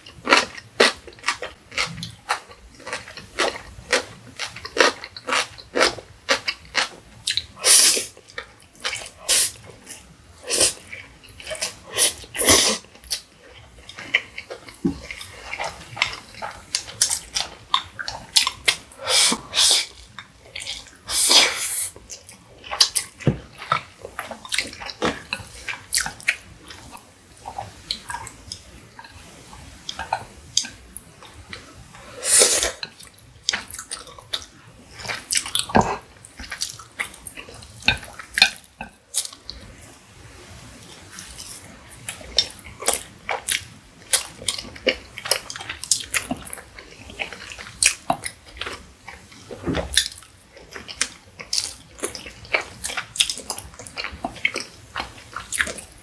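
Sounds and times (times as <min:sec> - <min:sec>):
slurping noodles: 0:08.8 - 0:12.9.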